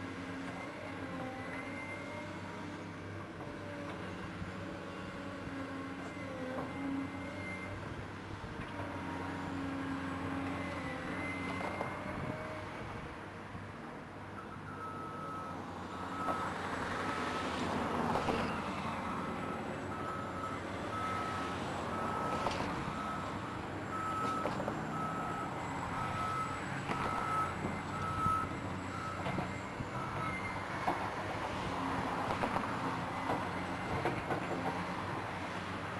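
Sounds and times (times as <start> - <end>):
excavator diesel engine: 0.0 - 35.9
reversing alarm beeping: 14.4 - 17.5, 18.4 - 30.7.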